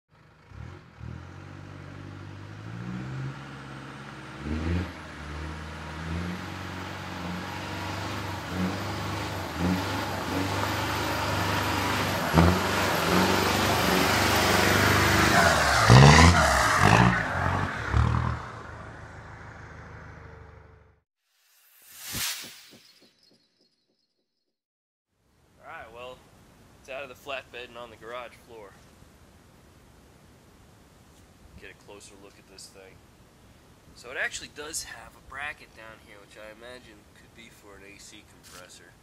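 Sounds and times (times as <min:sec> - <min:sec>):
pickup truck engine revving: 0:00.2 - 0:20.7.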